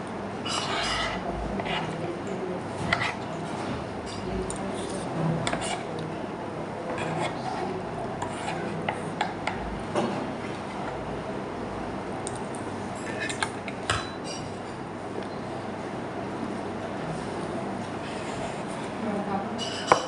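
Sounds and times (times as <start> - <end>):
low room hum: 0.0 - 20.0
cutlery scraping a plate: 0.4 - 2.0, 2.8 - 6.0, 6.9 - 10.9, 13.0 - 14.6, 19.6 - 20.0.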